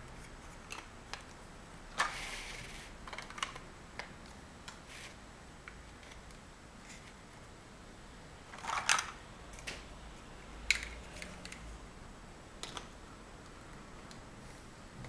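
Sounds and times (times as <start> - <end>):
plastic blocks clattering: 3.0 - 3.6, 8.5 - 9.2.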